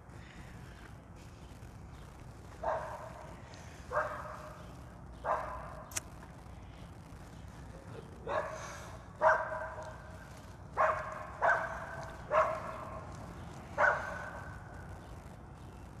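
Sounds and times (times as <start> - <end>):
dog barking: 2.6 - 3.3, 3.9 - 4.6, 5.2 - 5.9, 8.2 - 10.1, 10.7 - 13.0, 13.8 - 14.5.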